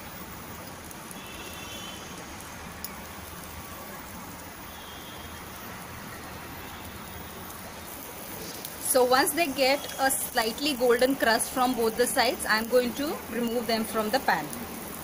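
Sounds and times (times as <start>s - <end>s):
eggs sizzling in a pan: 0.0s - 15.0s.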